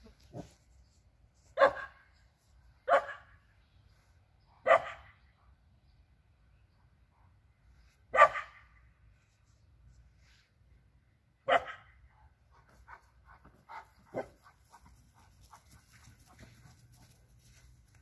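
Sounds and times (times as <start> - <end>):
dog barking: 1.6 - 2.0, 2.8 - 3.3, 4.6 - 5.2, 8.1 - 8.6, 11.5 - 11.9, 14.1 - 14.4.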